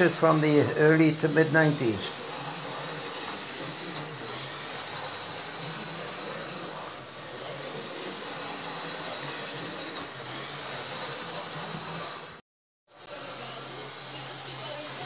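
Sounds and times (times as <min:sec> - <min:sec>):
model train motor whirring: 0:00.0 - 0:12.4, 0:13.0 - 0:15.0.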